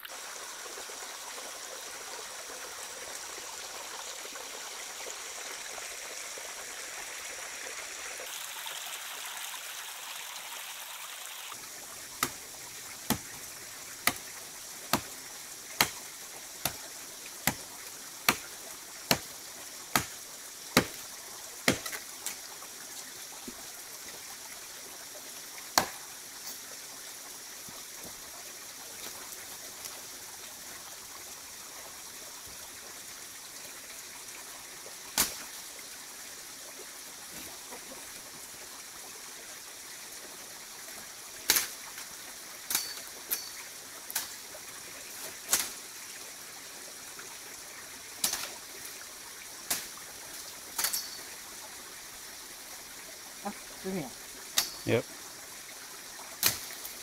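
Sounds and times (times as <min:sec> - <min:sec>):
stream trickling over rocks: 0:00.0 - 0:57.0
machete chopping undergrowth: 0:12.2 - 0:13.4, 0:14.0 - 0:14.3, 0:14.9 - 0:15.2, 0:15.8 - 0:16.0, 0:16.6 - 0:16.8, 0:17.4 - 0:18.5, 0:19.1 - 0:19.3, 0:19.9 - 0:20.2, 0:20.8 - 0:21.0, 0:21.6 - 0:22.4, 0:25.8 - 0:26.1, 0:35.2 - 0:35.5, 0:41.5 - 0:41.8, 0:45.5 - 0:45.8, 0:48.2 - 0:48.6, 0:49.7 - 0:49.9, 0:56.4 - 0:56.9.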